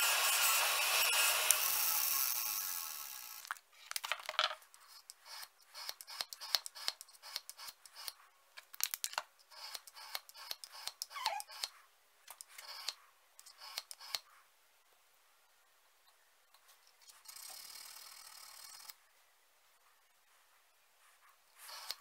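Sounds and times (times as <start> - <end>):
bench grinder winding down: 0.0 - 3.5
small irregular clicks: 5.8 - 14.3.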